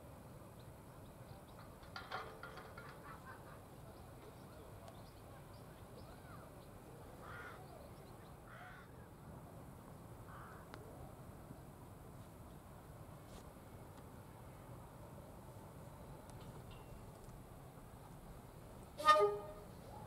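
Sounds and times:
harsh caw-like bird calls: 7.2 - 7.6, 8.5 - 8.9, 10.3 - 10.6.

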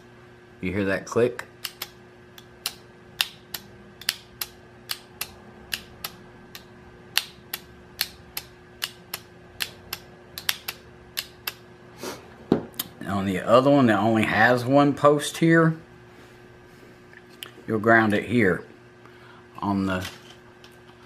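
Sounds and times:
solenoid clicking: 1.6 - 11.6.

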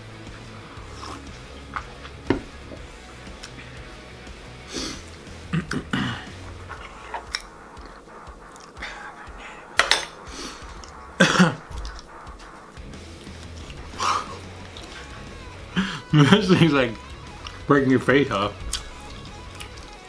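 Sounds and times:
quiet background music: 0.0 - 20.0
man coughing and clearing throat: 5.4 - 6.4, 11.1 - 11.9.

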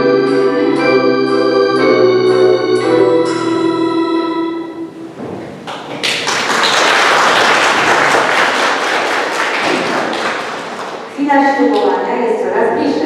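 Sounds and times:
audience applauding: 5.6 - 11.2.

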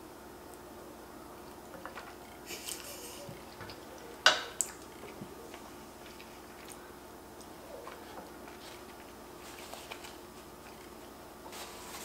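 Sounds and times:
wet chewing noises: 1.4 - 11.2
paper napkin rustle: 7.8 - 10.8, 11.4 - 12.0.

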